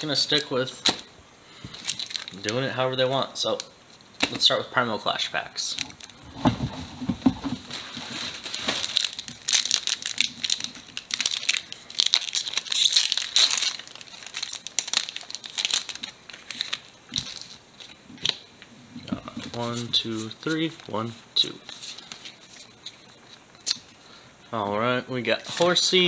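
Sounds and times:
foil wrapper crinkling and tearing: 1.8s - 2.7s, 7.6s - 18.4s.

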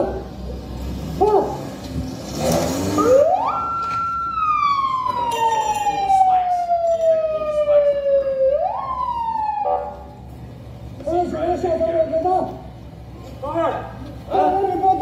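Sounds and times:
siren wailing over loudspeakers: 3.0s - 10.1s.

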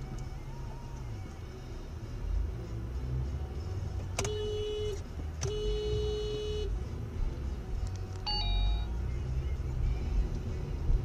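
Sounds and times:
low road rumble: 0.0s - 11.0s
car horn: 4.2s - 6.8s.

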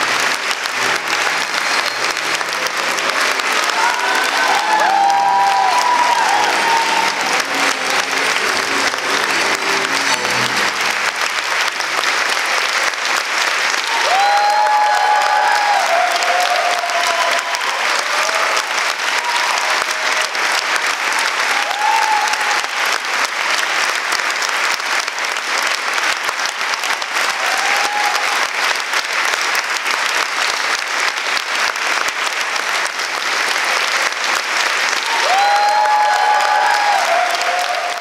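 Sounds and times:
audience applauding: 0.0s - 38.0s.

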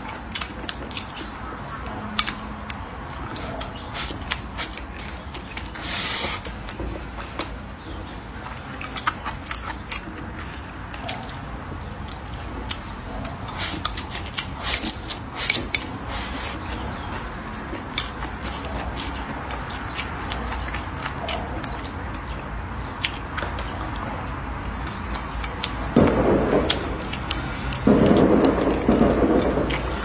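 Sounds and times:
chewing: 0.0s - 30.0s
loud rushing noise: 25.8s - 30.0s.

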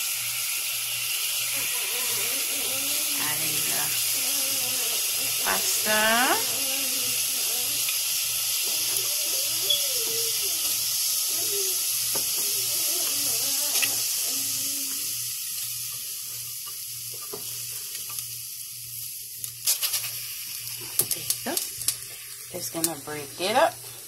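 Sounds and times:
water sizzling in hot pot: 0.0s - 24.0s.

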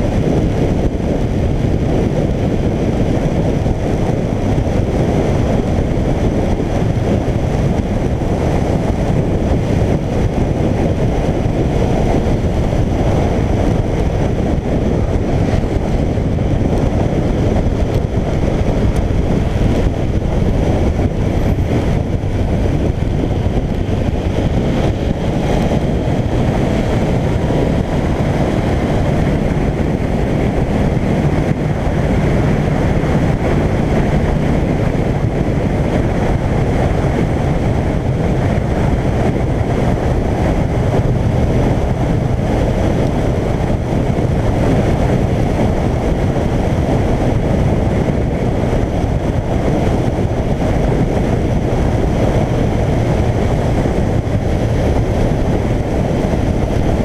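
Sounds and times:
motorcycle engine cruising: 0.0s - 57.0s
tyres on wet road: 0.0s - 57.0s
wind rushing over microphone: 0.0s - 57.0s.

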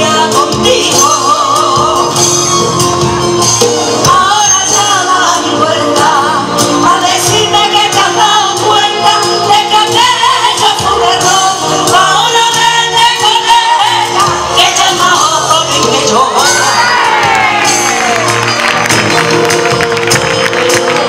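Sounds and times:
woman singing into a microphone: 0.0s - 2.7s, 4.0s - 17.4s
drums: 0.0s - 21.0s
electric guitar: 0.0s - 21.0s
keyboard: 0.0s - 21.0s.

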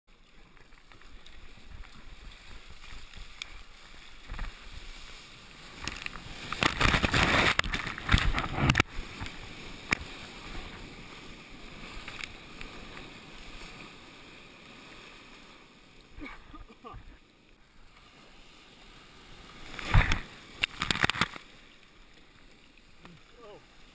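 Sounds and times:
paddle splashes: 0.1s - 23.9s
wind noise: 1.2s - 13.7s, 19.6s - 21.3s.

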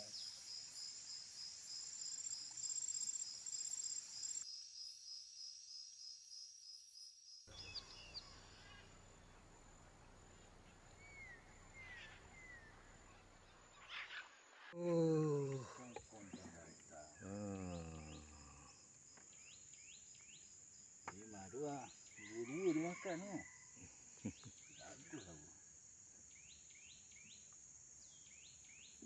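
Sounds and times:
insects trilling: 0.0s - 14.2s, 14.8s - 29.0s
bird chirps: 7.5s - 9.4s, 10.6s - 14.4s.

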